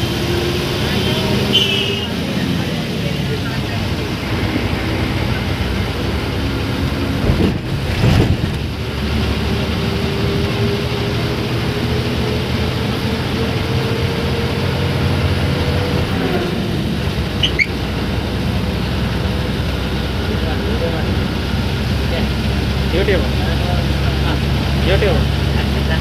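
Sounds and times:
bus engine drone and whine: 0.0s - 26.0s
short high squeak: 17.4s - 17.8s.

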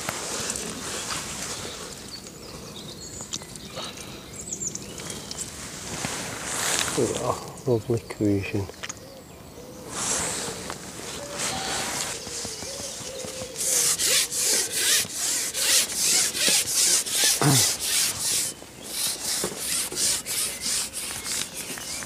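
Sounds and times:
fishing pole rubbing and scraping: 10.0s - 12.5s, 13.2s - 22.0s.

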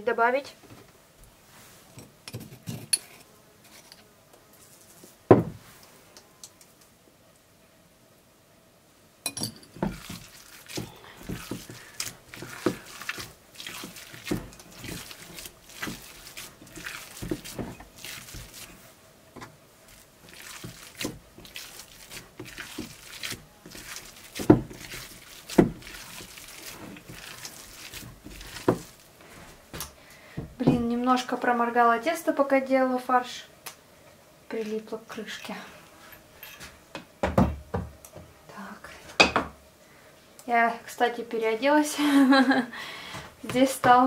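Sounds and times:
wet squelches of hand mixing meat: 9.8s - 19.0s, 19.8s - 29.7s.

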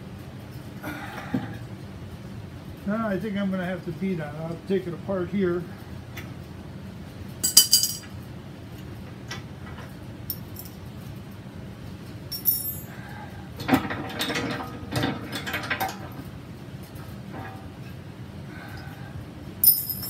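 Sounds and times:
wrench and bolts clinking: 7.4s - 8.1s, 10.3s - 10.8s, 12.3s - 13.0s, 19.6s - 20.0s.

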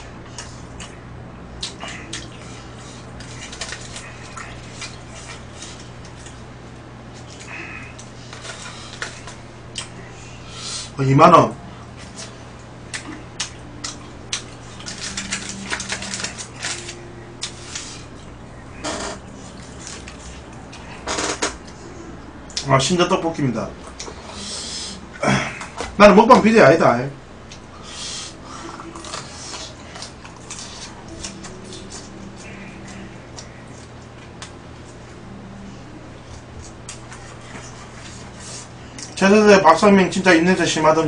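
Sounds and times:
person chewing food: 0.0s - 11.0s, 11.8s - 21.0s, 27.4s - 39.2s.

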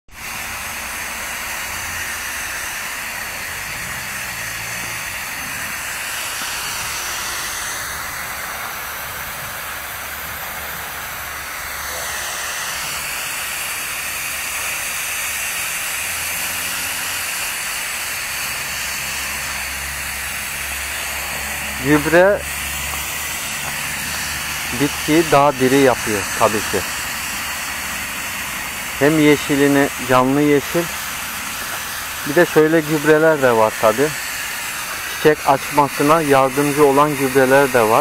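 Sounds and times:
hose spray nozzle hissing: 0.1s - 38.0s.

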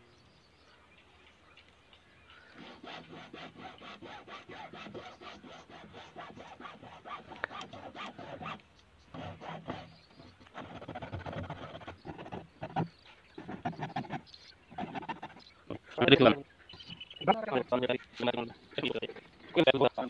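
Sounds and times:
hacksaw cutting pipe: 2.6s - 15.4s.

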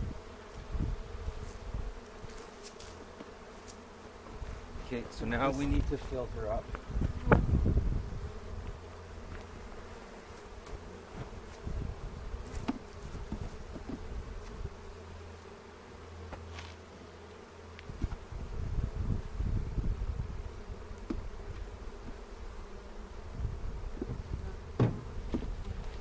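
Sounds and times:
bees buzzing: 0.0s - 26.0s.

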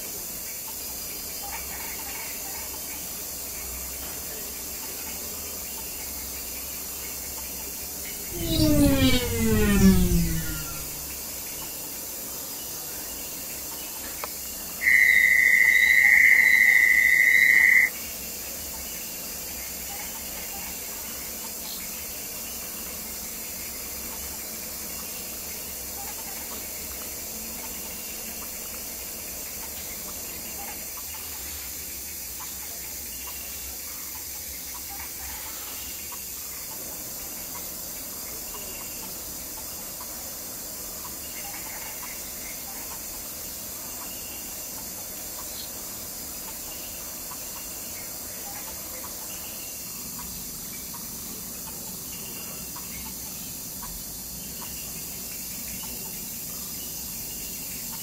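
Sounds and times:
high-pitched tone: 8.3s - 11.2s.

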